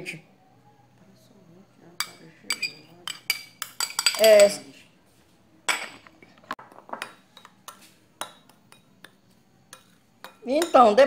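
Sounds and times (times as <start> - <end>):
metal spoon clinking on glass: 2.0 - 4.6, 7.0 - 11.0.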